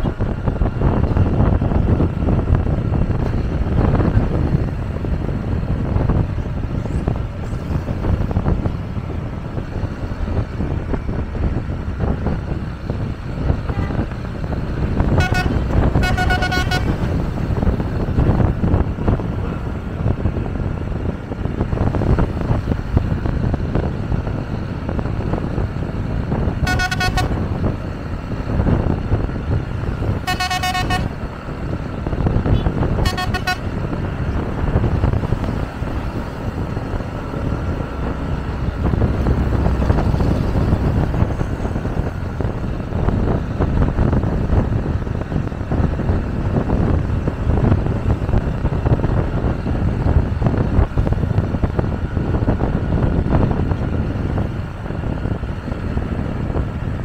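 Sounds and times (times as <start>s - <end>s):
road and wind rumble: 0.0s - 57.0s
vehicle horn blasts: 15.2s - 17.1s, 26.6s - 27.4s, 30.2s - 31.2s, 32.5s - 33.7s.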